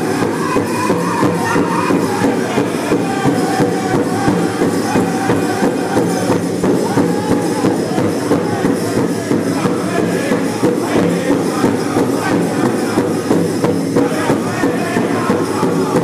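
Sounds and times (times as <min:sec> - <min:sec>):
big drum beat: 0:00.0 - 0:16.0
drum group singing: 0:00.0 - 0:16.0.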